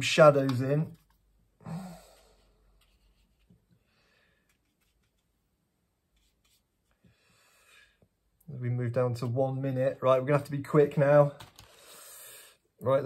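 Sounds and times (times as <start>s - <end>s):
person sighing: 1.6s - 2.6s
soft faint rustle: 2.3s - 3.8s, 4.5s - 5.4s, 6.1s - 7.0s.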